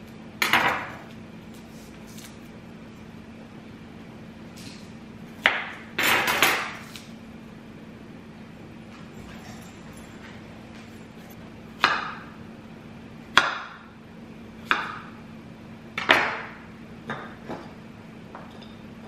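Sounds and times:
knife chopping on wooden board: 0:05.4 - 0:07.0, 0:11.8 - 0:12.3, 0:13.3 - 0:13.8, 0:14.6 - 0:15.1, 0:16.0 - 0:17.7.

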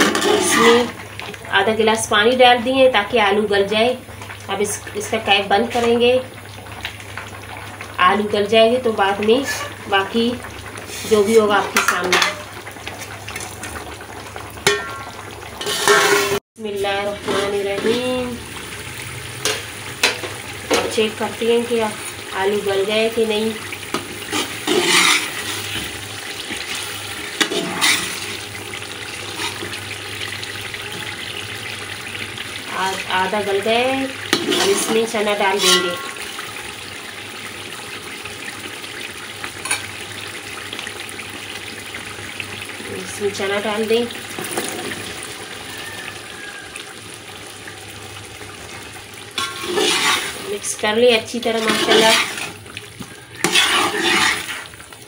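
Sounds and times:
gravy bubbling in a pot: 0:00.0 - 0:16.4, 0:17.0 - 0:55.0
ladle stirring: 0:14.6 - 0:16.4, 0:23.9 - 0:28.4, 0:49.4 - 0:50.5, 0:51.4 - 0:54.8.

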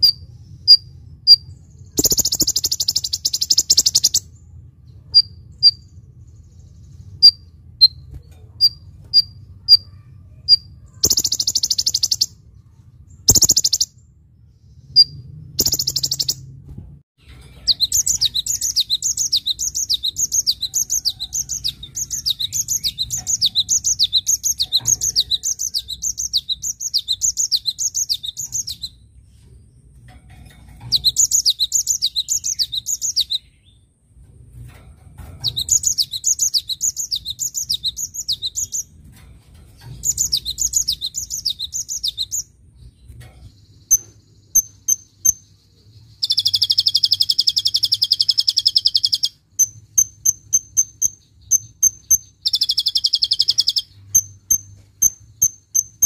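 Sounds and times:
bird high rapid twittering: 0:00.0 - 0:04.3, 0:10.5 - 0:12.4, 0:13.2 - 0:14.0, 0:14.9 - 0:16.5, 0:17.3 - 0:29.0, 0:30.8 - 0:33.5, 0:35.4 - 0:38.9, 0:39.7 - 0:42.5, 0:43.6 - 0:56.0.

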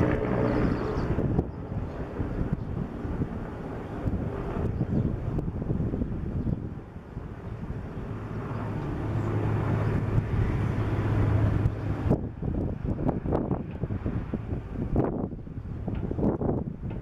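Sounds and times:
helicopter engine and rotor drone: 0:00.0 - 0:17.0
wind on microphone: 0:00.0 - 0:17.0.

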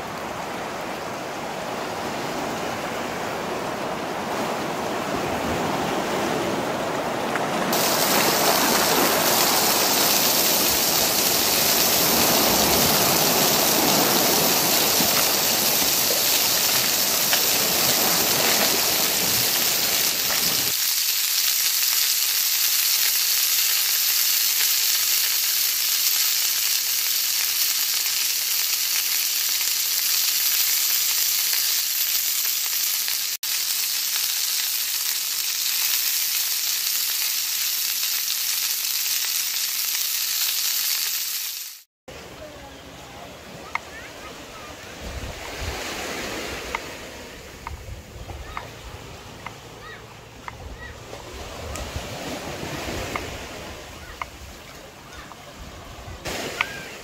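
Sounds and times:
small waves washing on shore: 0:00.0 - 0:33.8, 0:42.1 - 0:57.0
fish sizzling in hot oil: 0:07.7 - 0:41.9.

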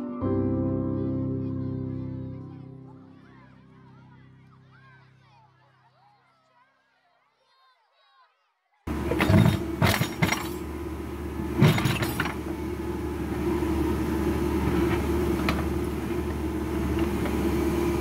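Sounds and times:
diesel engine running: 0:08.9 - 0:18.0
bucket clanking and scraping stones: 0:09.0 - 0:10.6.

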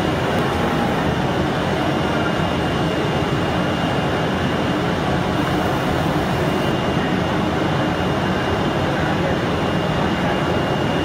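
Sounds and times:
cutting machine running: 0:00.0 - 0:01.2
high machine whine: 0:00.0 - 0:11.0.

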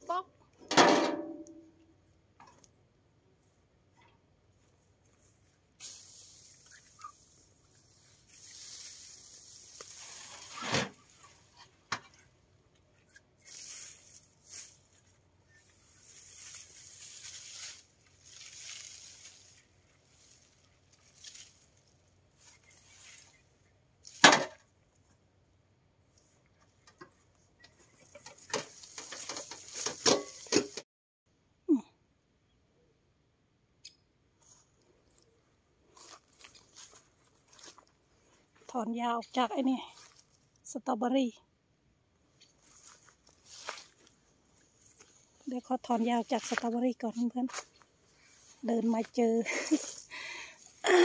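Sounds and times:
rustling swishes of weeds: 0:05.2 - 0:11.6, 0:13.4 - 0:24.2, 0:42.6 - 0:45.4.

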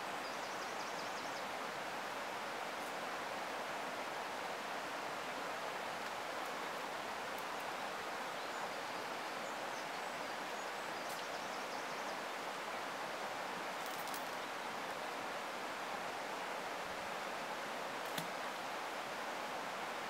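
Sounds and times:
river water pouring over weir: 0:01.5 - 0:11.0, 0:12.1 - 0:20.0.

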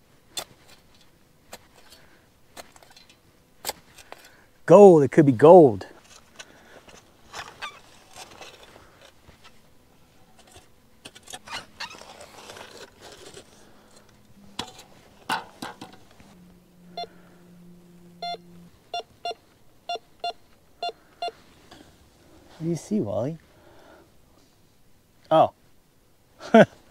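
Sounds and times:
metal detector beeps: 0:16.9 - 0:17.2, 0:18.1 - 0:21.4.

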